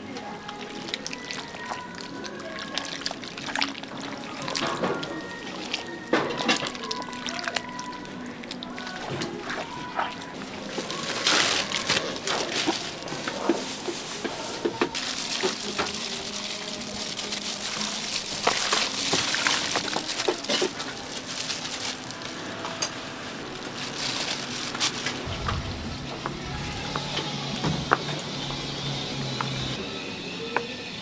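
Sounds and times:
music: 0.0 - 31.0
food sizzling on hot plate: 10.5 - 22.3.

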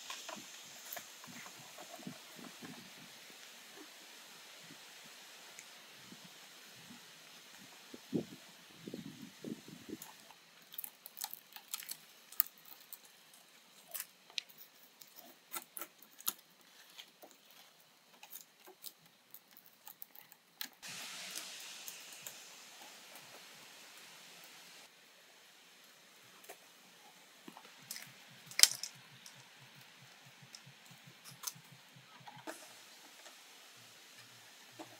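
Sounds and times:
steady hiss: 0.0 - 34.9
wire and bamboo clicking: 10.0 - 23.4, 27.4 - 33.4.

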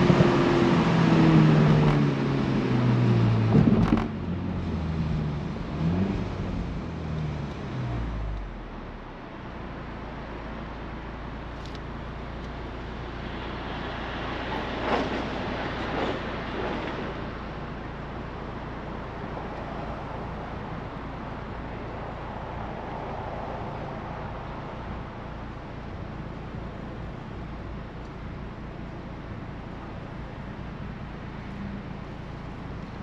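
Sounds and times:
tyre and wind noise: 0.0 - 4.4
car engine hum: 0.0 - 33.0.

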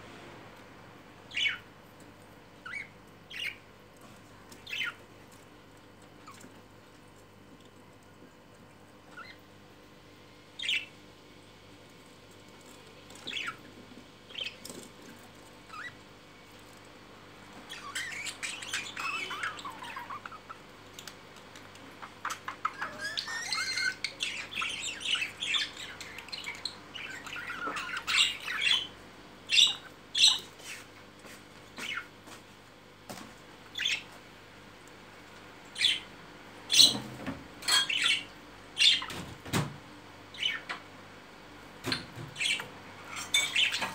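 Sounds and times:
budgerigars chirping: 1.3 - 1.6, 2.6 - 3.6, 4.7 - 5.0, 10.6 - 10.9, 13.3 - 13.6, 17.6 - 20.6, 22.0 - 28.9, 29.5 - 30.9, 33.8 - 34.1, 35.8 - 36.1, 36.7 - 37.0, 37.7 - 39.2, 40.3 - 40.7, 42.4 - 43.9.

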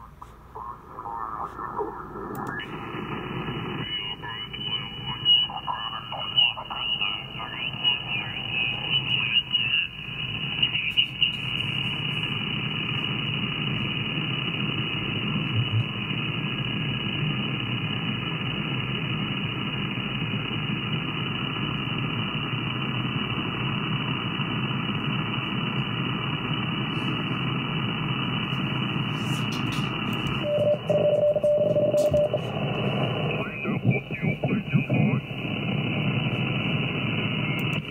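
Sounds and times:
radio static hiss: 0.0 - 37.9
faint radio whistles: 29.3 - 35.2.

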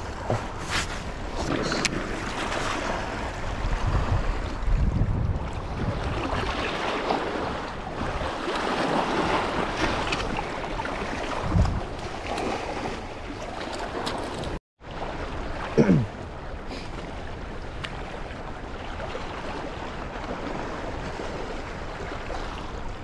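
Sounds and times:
wind buffeting microphone: 0.0 - 13.4.

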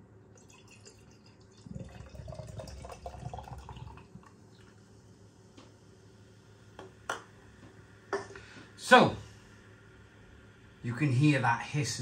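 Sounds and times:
beer pouring into a glass: 0.4 - 4.8.

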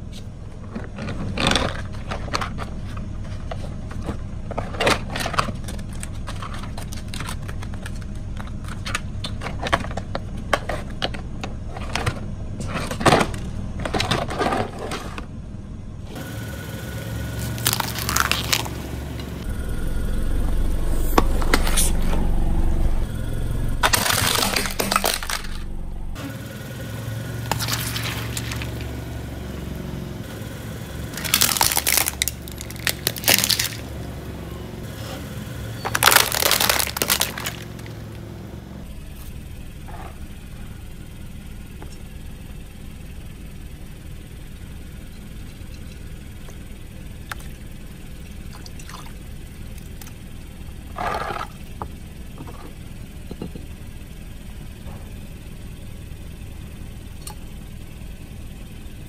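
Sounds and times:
low engine rumble: 0.0 - 59.0
tyres crushing objects: 17.3 - 19.4, 23.7 - 26.2, 27.4 - 29.0, 31.0 - 33.9, 35.9 - 38.2.

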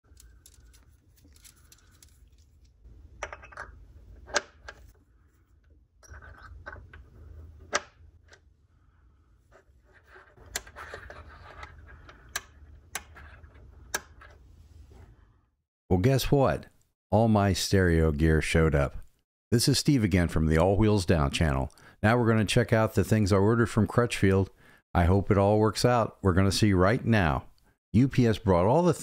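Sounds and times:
scraping and rustling handling noise: 0.0 - 2.9.

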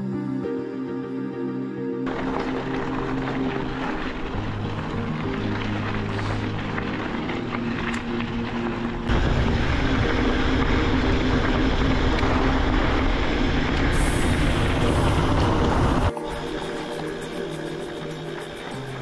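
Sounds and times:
background music with sustained chords: 0.0 - 19.0
wind buffeting microphone: 2.1 - 16.1
mountain bike riding on gravel: 2.1 - 19.0.

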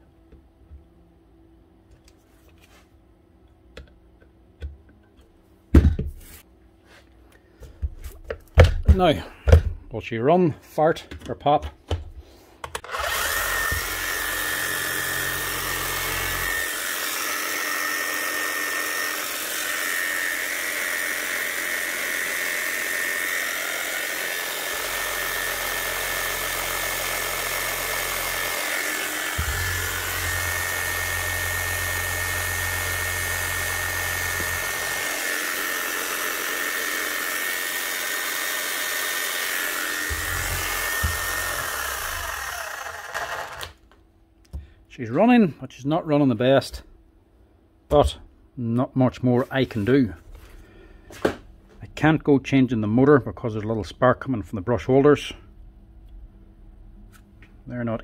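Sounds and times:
electric motor whining: 12.8 - 43.8.

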